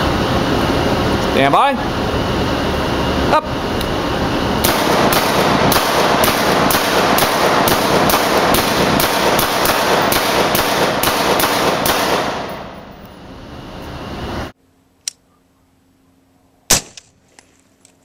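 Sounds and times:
suppressed rifle shots echoing: 4.6s - 12.7s, 16.7s - 17.1s.

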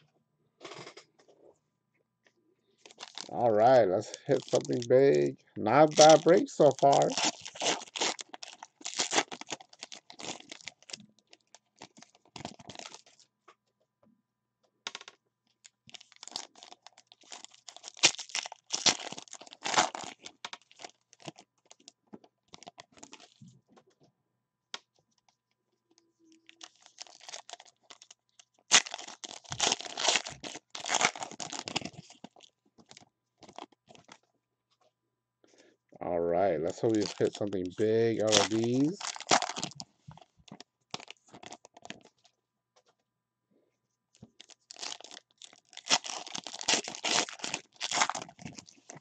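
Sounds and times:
foil wrappers tearing and crinkling: 2.8s - 13.2s, 15.6s - 21.9s, 22.5s - 23.5s, 26.4s - 34.2s, 36.7s - 42.3s, 44.2s - 49.0s.

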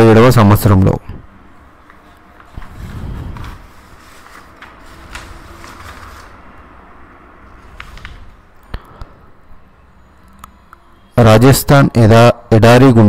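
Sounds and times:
paper rustling and rubbing: 1.8s - 6.7s, 7.4s - 8.6s.

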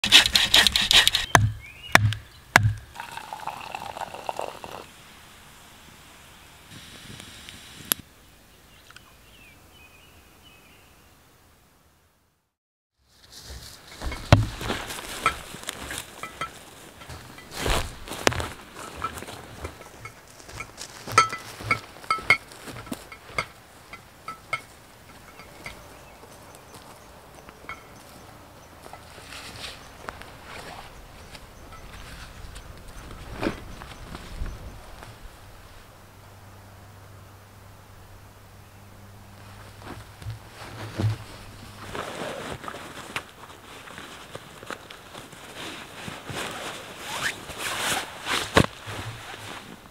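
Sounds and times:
hand saw cutting branch: 0.0s - 2.7s
sharp knocks with low thuds: 1.3s - 2.8s, 14.0s - 15.5s, 39.9s - 41.4s
tea pouring into a mug: 2.9s - 4.9s
backpack gear clinking: 13.9s - 26.2s.

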